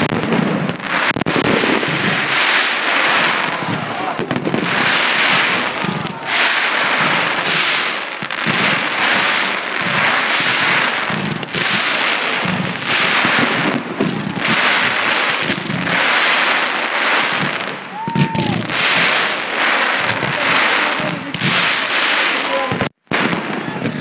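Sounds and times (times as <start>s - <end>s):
fireworks crackling: 0.0s - 24.0s
sharp firework report: 0.0s - 24.0s.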